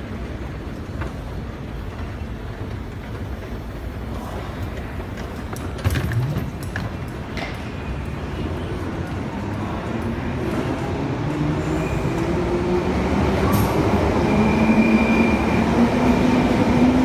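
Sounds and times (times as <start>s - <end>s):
low station rumble: 0.0s - 17.0s
suitcase wheels clattering: 2.5s - 7.7s.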